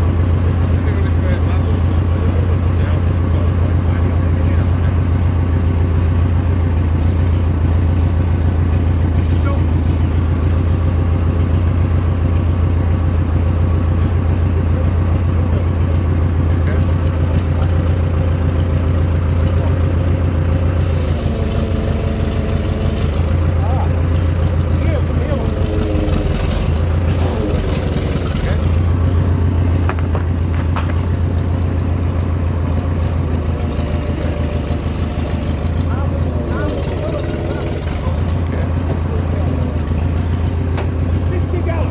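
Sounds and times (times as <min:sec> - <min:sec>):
diesel engine idling: 0:00.0 - 0:41.9
sharp clicks and knocks: 0:29.8 - 0:32.3.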